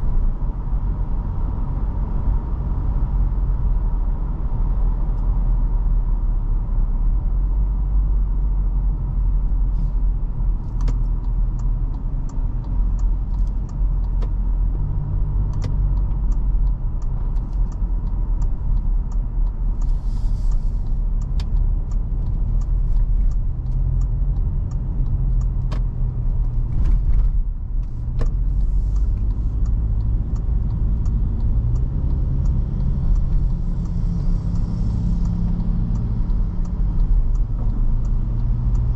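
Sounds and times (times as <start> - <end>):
car engine and tyres rumbling: 0.0 - 38.9
faint regular ticking: 10.3 - 38.9.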